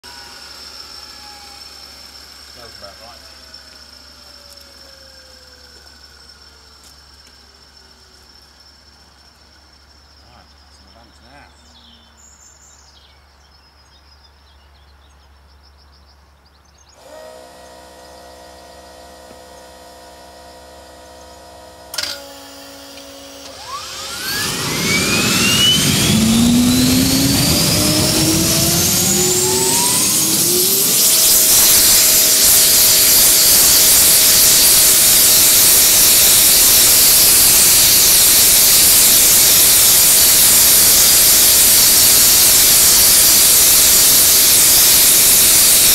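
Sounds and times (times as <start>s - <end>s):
turbine engine roaring: 0.0s - 4.8s, 17.0s - 45.9s
electric starter whine: 0.0s - 10.0s, 16.9s - 45.9s.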